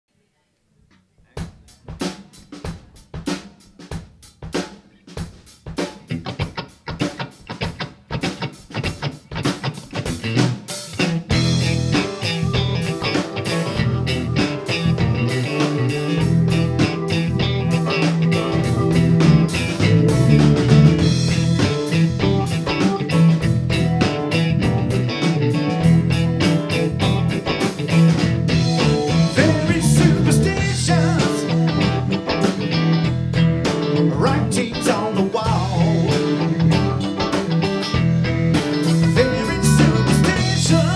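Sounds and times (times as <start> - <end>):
rock drum kit beat: 1.3 - 40.9
bass guitar: 5.2 - 40.9
electric guitar: 5.8 - 40.9
keyboards: 9.4 - 40.9.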